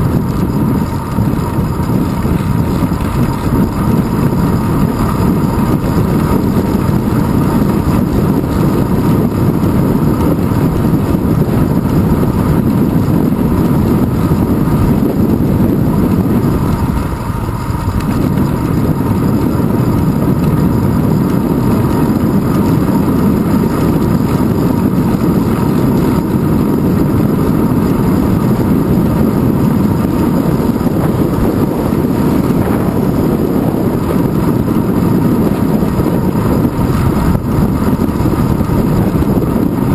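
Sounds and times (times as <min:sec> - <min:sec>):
road rumble: 0:00.0 - 0:39.9
wind rush: 0:00.0 - 0:39.9.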